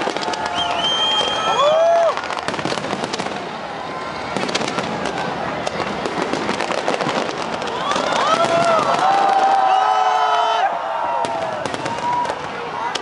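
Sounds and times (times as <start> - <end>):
fireworks crackling and popping: 0.0 - 13.0.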